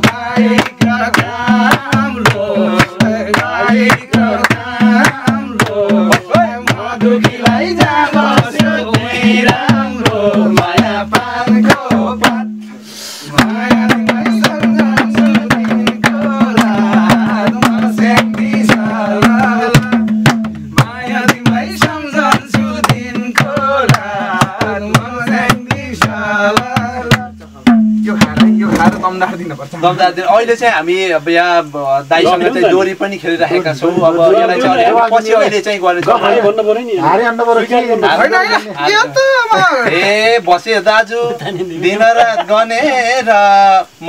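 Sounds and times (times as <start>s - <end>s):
hand drum in a driving rhythm: 0.0s - 29.5s, 33.8s - 36.5s
voices singing a folk song: 0.0s - 44.0s.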